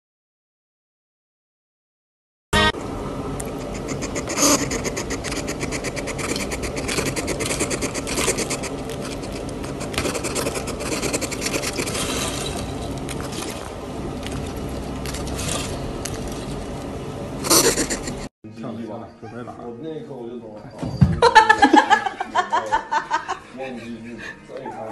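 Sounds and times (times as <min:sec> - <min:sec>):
hedgehog chewing and licking: 0:03.8 - 0:12.4.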